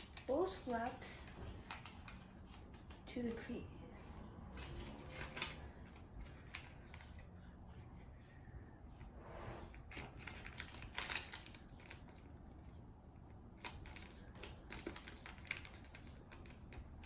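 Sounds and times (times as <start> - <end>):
paper folding crinkles: 4.5 - 7.9, 9.7 - 17.0.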